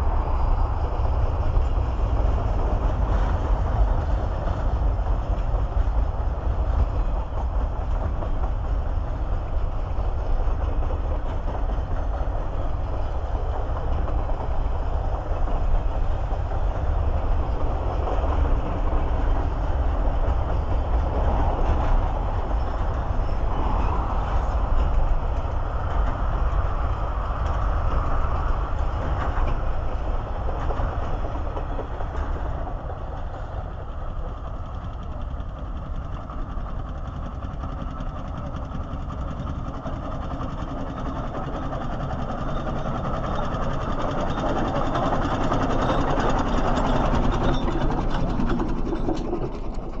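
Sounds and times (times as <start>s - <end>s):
freight train wagons rumbling: 0.0s - 50.0s
steam traction engine running: 0.0s - 50.0s.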